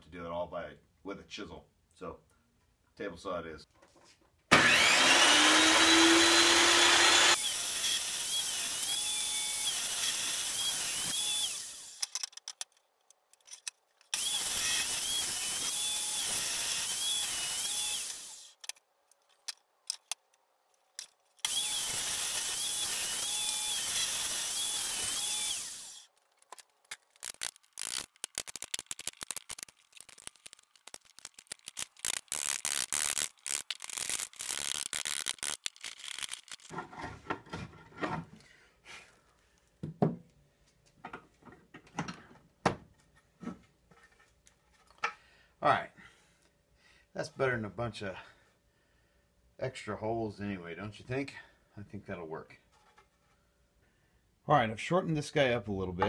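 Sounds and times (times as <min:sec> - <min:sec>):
table saw whining and cutting wood: 0:04.5 - 0:12.0, 0:14.2 - 0:18.5, 0:21.4 - 0:26.0.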